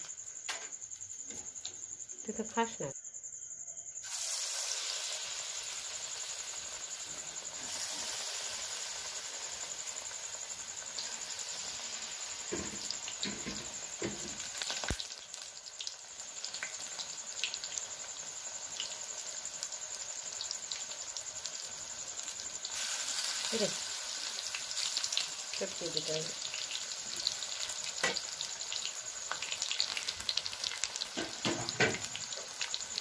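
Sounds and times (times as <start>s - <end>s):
hot oil sizzling: 4.0s - 33.0s
crackles and pops in oil: 12.6s - 16.8s.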